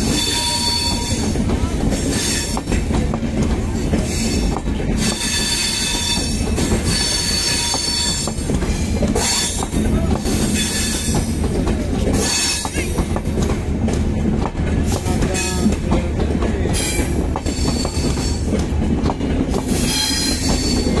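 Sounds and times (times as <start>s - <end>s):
metallic wheel squeals: 0.0s - 1.2s, 4.1s - 8.4s, 19.8s - 21.0s
train wheels rumbling: 0.0s - 21.0s.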